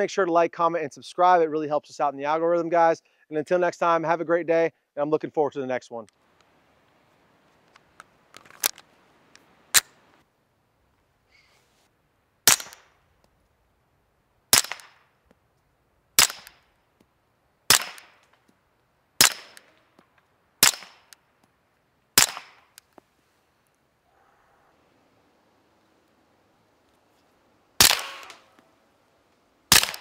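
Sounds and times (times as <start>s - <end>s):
suppressed pistol shots: 12.4s - 13.0s, 14.5s - 15.1s, 16.2s - 16.7s, 17.7s - 18.3s, 19.2s - 19.8s, 20.6s - 21.2s, 22.2s - 22.8s, 27.8s - 28.6s, 29.7s - 30.0s
magazine clicking into pistol: 29.7s - 30.0s.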